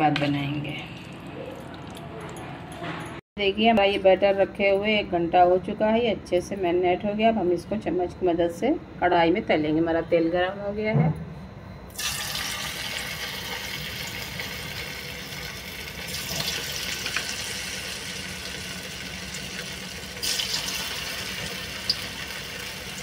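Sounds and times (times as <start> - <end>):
meat sizzling in hot oil: 12.0 - 23.0.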